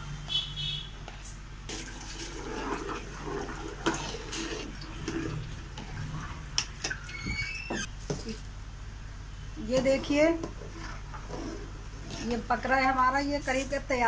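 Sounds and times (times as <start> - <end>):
syrup boiling and bubbling: 1.7 - 7.9, 9.9 - 12.9
brief high squeal: 7.0 - 7.9.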